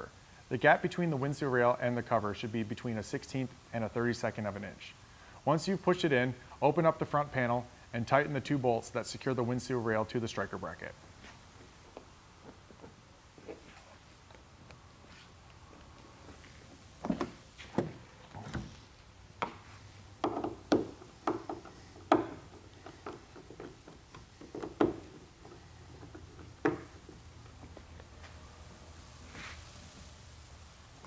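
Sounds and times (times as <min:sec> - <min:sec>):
hand tools knocking and clicking: 0:20.2 - 0:27.2.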